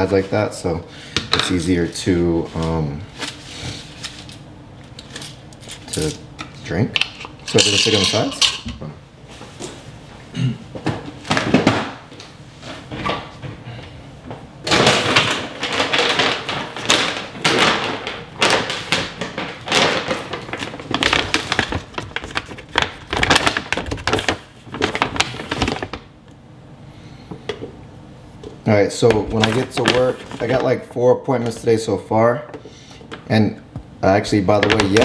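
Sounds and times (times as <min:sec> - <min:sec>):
plastic bag rustling: 0:14.7 - 0:26.1, 0:29.0 - 0:30.8.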